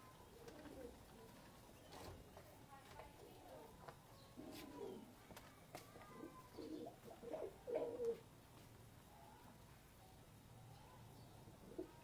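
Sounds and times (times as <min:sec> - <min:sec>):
pigeons cooing: 0:04.4 - 0:05.1, 0:06.2 - 0:08.2, 0:11.6 - 0:12.0.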